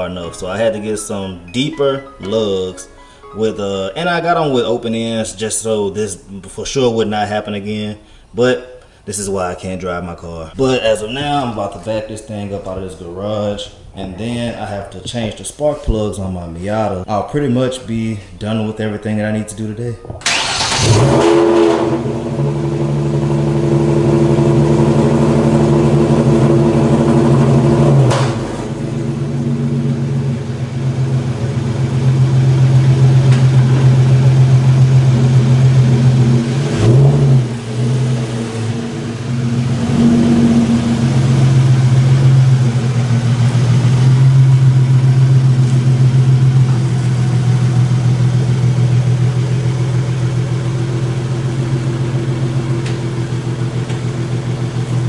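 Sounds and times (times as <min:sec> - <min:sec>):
car engine running at low speed: 0:20.8 - 0:55.0.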